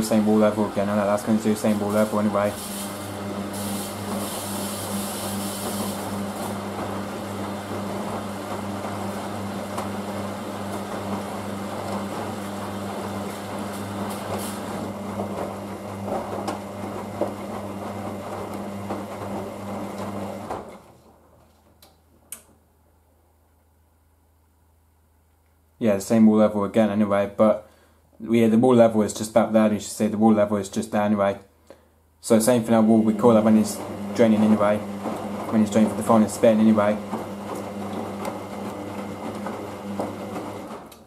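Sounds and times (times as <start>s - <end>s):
washing machine water rushing: 0.0s - 20.8s, 32.4s - 41.0s.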